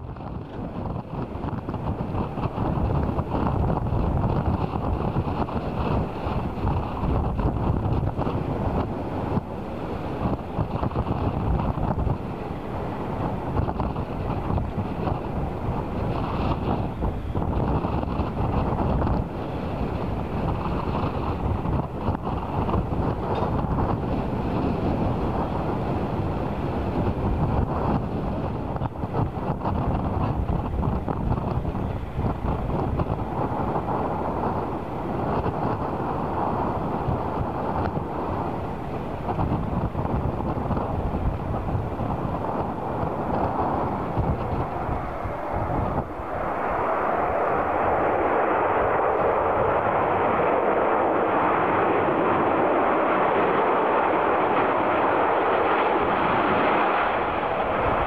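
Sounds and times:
jet engines rumbling: 0:00.0 - 0:58.0
wind buffeting microphone: 0:00.0 - 0:58.0.

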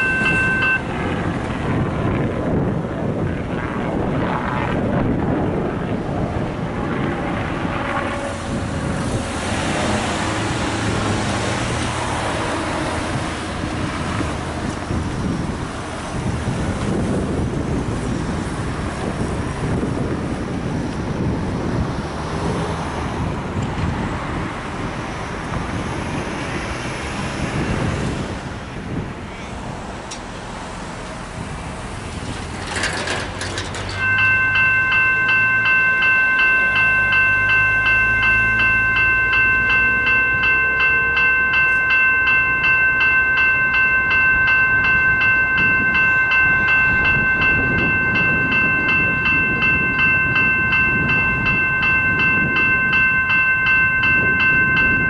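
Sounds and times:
level crossing warning bells: 0:00.0 - 0:01.6, 0:07.8 - 0:17.7, 0:32.6 - 0:55.0
cars driving past: 0:00.0 - 0:02.1, 0:06.9 - 0:55.0
wind buffeting microphone: 0:00.0 - 0:55.0.

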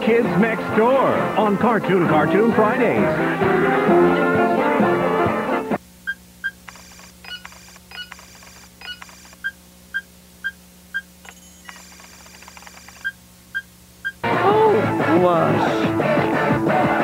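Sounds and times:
short electronic beeps: 0:06.0 - 0:12.0, 0:12.9 - 0:14.2
rapid high-pitched chirps: 0:06.4 - 0:13.7.

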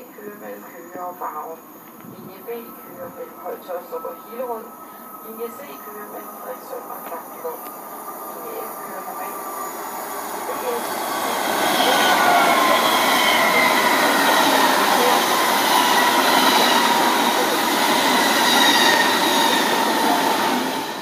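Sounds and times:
faint whine: 0:00.0 - 0:10.9
train wheels rushing on rail: 0:01.3 - 0:21.0.

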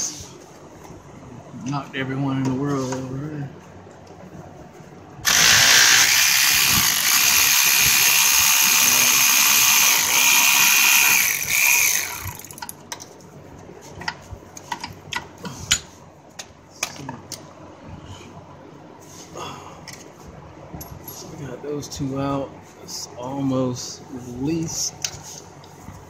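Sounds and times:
cordless power tool running: 0:05.2 - 0:12.7.

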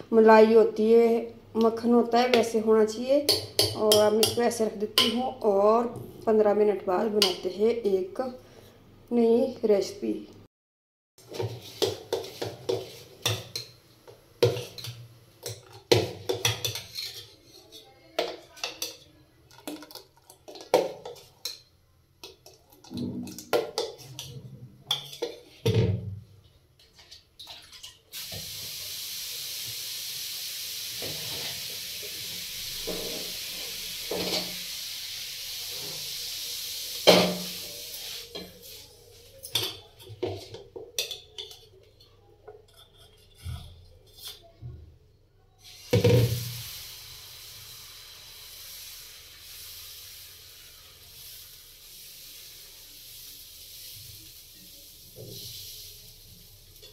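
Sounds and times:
ladle scraping steel pot: 0:16.4 - 0:17.9, 0:42.7 - 0:44.5.

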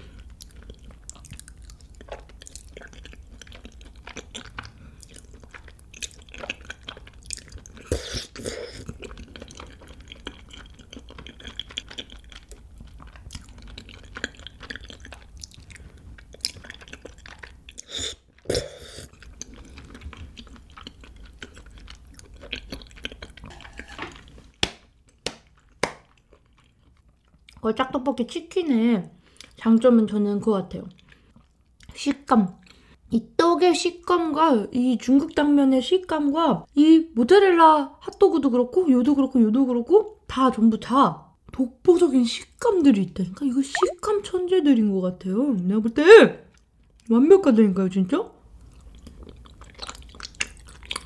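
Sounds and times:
noodles slurped and chewed: 0:00.0 - 0:24.6, 0:48.6 - 0:51.0
wet mouth clicks: 0:43.7 - 0:44.1.

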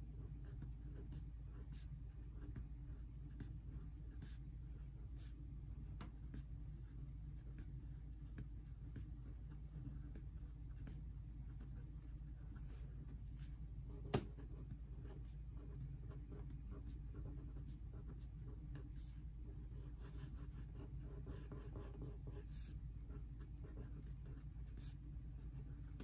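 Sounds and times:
low steady hum: 0:00.0 - 0:26.0
felt-tip marker on paper: 0:07.4 - 0:26.0.

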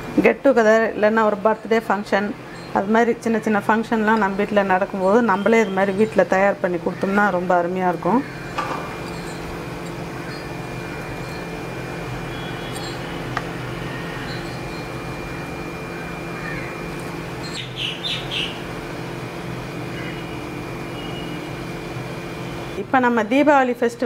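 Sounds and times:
appliance or fan humming: 0:00.0 - 0:24.0
high bird chirps: 0:08.4 - 0:11.6, 0:12.2 - 0:13.3, 0:13.9 - 0:15.0, 0:17.4 - 0:18.6.

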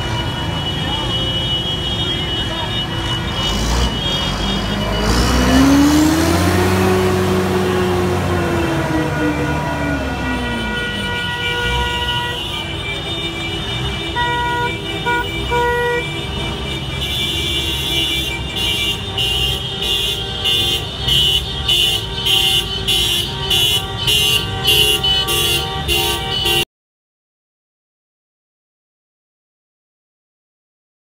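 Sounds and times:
vehicle horns honking: 0:00.0 - 0:26.7
tractor engines running: 0:01.8 - 0:12.0.

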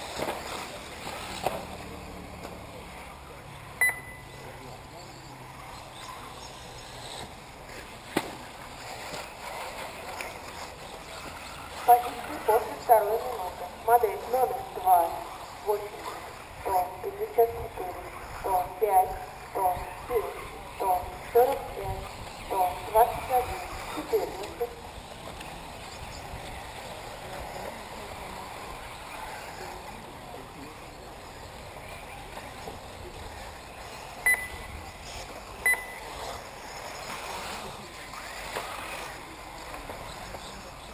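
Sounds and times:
outdoor background noise: 0:00.0 - 0:40.9
steady background noise: 0:00.0 - 0:40.9
short high electronic beeps: 0:03.8 - 0:04.4, 0:34.2 - 0:34.7, 0:35.6 - 0:36.1.

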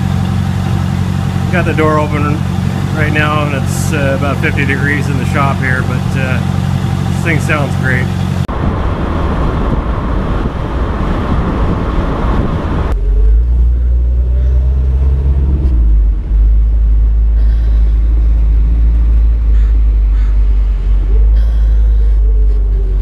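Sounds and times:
car engine rumble: 0:00.0 - 0:23.0
wind rushing over camera: 0:08.5 - 0:13.0.

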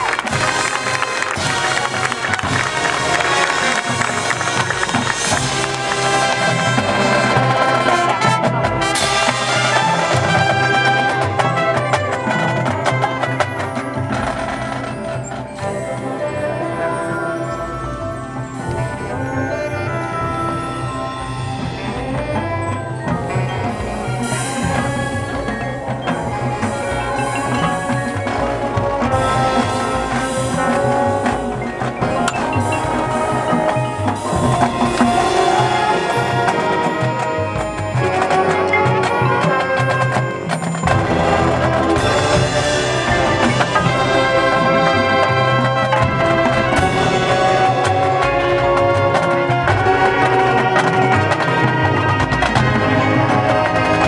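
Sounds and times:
drums: 0:00.0 - 0:54.0
mallet keyboards: 0:00.0 - 0:54.0
marching band brass: 0:00.0 - 0:54.0
percussion section: 0:00.0 - 0:54.0
brass playing sustained chords: 0:15.9 - 0:40.2.

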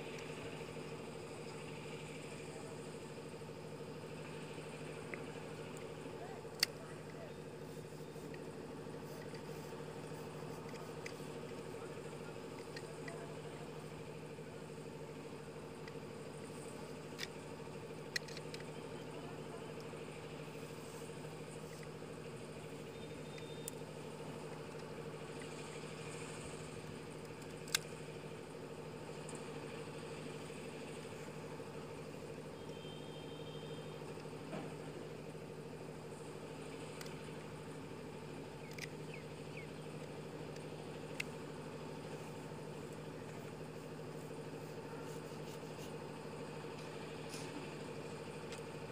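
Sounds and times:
steady mechanical hum: 0:00.0 - 0:48.9
sharp clicks: 0:38.5 - 0:41.4.

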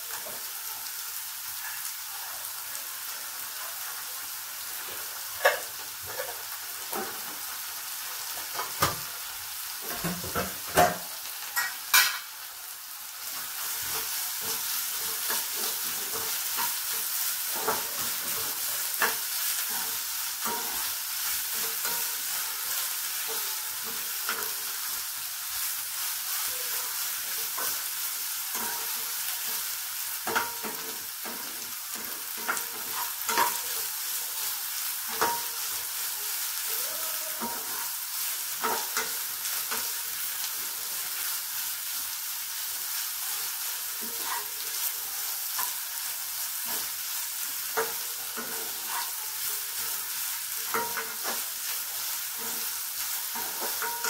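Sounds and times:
vegetables sizzling in a wok: 0:00.0 - 0:54.0
spatula scraping and knocking pan: 0:09.8 - 0:12.3, 0:47.6 - 0:54.0.

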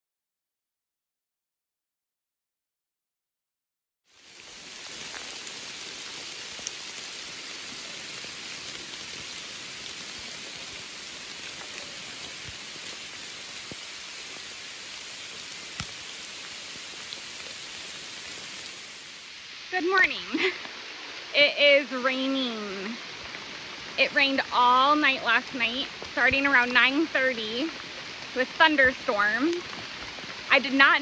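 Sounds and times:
raindrop hits: 0:04.1 - 0:21.3, 0:25.2 - 0:31.0
rain on foliage: 0:04.1 - 0:31.0.

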